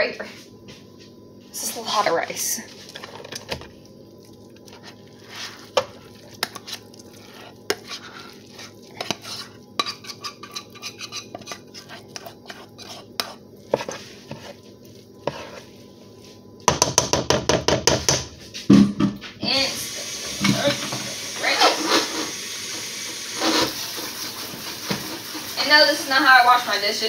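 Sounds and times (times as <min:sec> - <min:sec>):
spoon scraping and knocking pans: 0:04.7 - 0:14.6.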